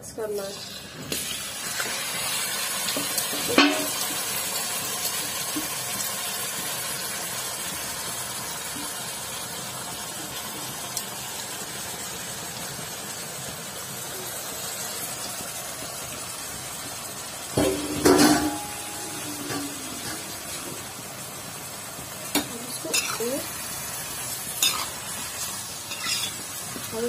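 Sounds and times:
chicken sizzling in a pan: 0.1 - 27.0
metal clank against pan: 3.5 - 4.0, 17.6 - 20.3.

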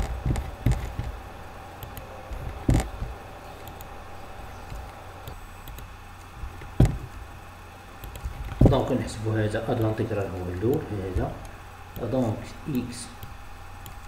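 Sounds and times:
steady low hum: 0.0 - 14.0
sharp knocks: 6.4 - 7.1.

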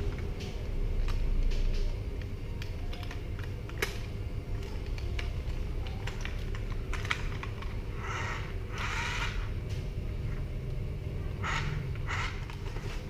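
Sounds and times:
plastic toy parts clicking: 2.2 - 7.7
steady low rumble: 3.3 - 13.0.

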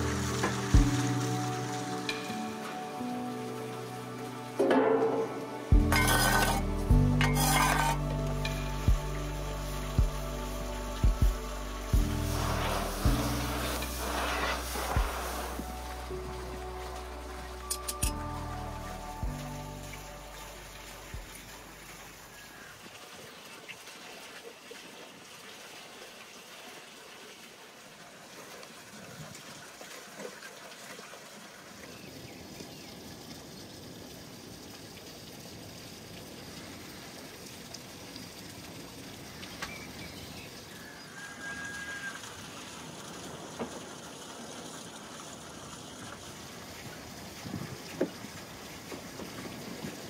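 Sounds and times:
trickling water hiss: 0.0 - 50.0
bird call: 40.7 - 42.2.

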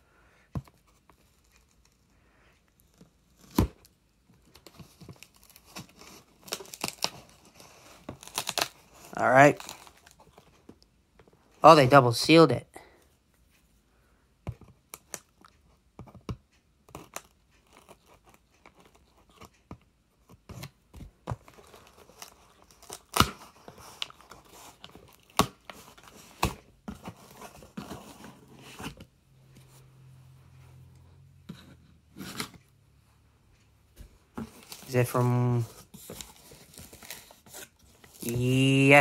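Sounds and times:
packing tape tearing: 5.1 - 10.1, 21.6 - 26.6.

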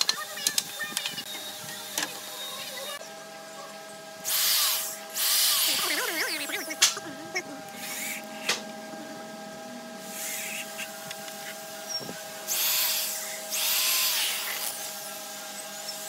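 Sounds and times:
cordless drill boring into wood: 4.3 - 6.0, 12.5 - 15.1.

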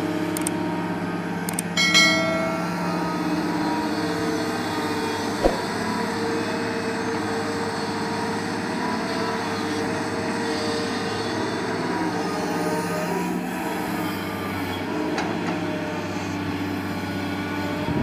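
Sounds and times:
excavator diesel engine droning: 0.0 - 5.3, 6.2 - 17.9
sharp knock: 5.4 - 5.7.

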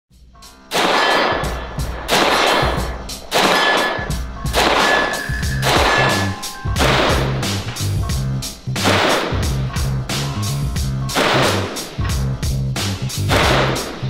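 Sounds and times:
background music with low beat: 0.1 - 14.0
rifle shots with echo: 0.7 - 7.5, 8.8 - 9.6, 11.1 - 12.0, 13.3 - 14.0.

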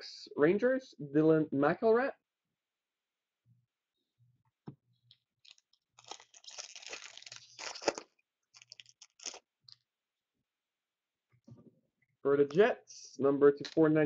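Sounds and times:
plastic packaging crinkling: 5.4 - 9.8.

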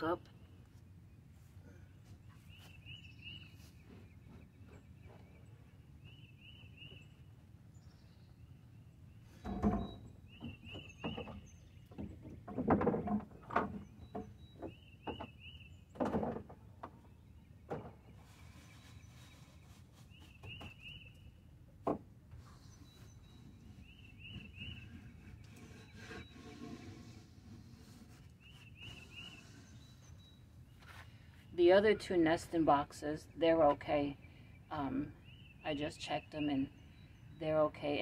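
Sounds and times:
bird chirping: 2.2 - 12.5, 13.7 - 16.0, 17.0 - 21.5, 22.4 - 27.0, 28.3 - 31.7, 34.0 - 38.0.

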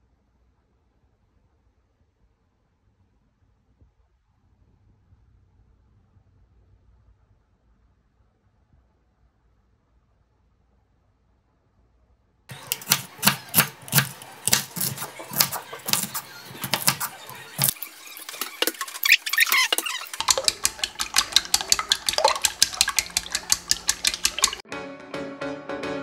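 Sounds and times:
chopsticks beating eggs in bowl: 12.5 - 24.6
kitchen clatter and knocks: 12.5 - 24.6.

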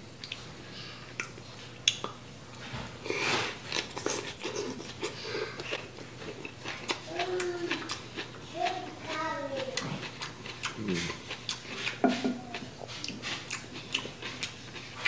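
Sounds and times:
small mouth clicks: 1.2 - 2.2
wet chewing: 3.1 - 15.0.

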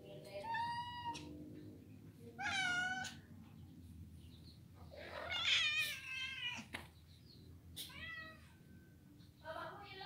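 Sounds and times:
cat meowing: 0.4 - 1.3, 2.4 - 3.2, 5.0 - 6.7, 7.8 - 8.5.

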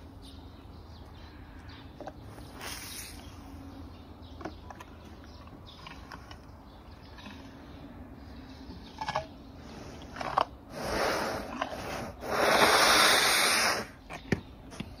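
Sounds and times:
elephant trunk sniffing and blowing: 9.6 - 14.0.

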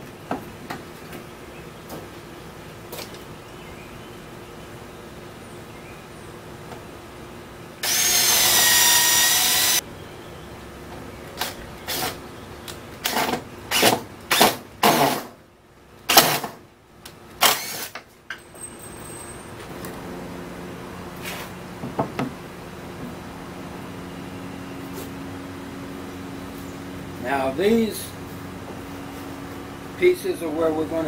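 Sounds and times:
power drill driving screws: 7.8 - 9.8, 13.0 - 15.4, 17.4 - 18.0.

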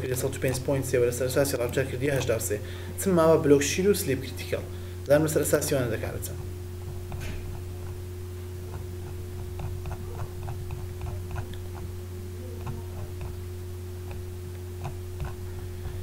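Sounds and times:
low electrical hum: 0.0 - 16.0
computer mouse scroll clicks: 8.7 - 11.9, 12.6 - 13.4, 14.0 - 15.5.

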